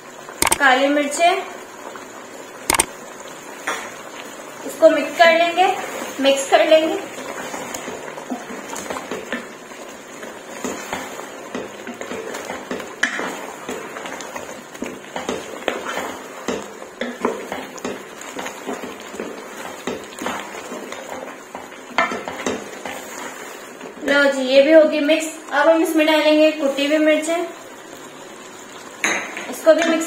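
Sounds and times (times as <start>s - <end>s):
wooden spatula scraping pot: 10.2s - 24.0s.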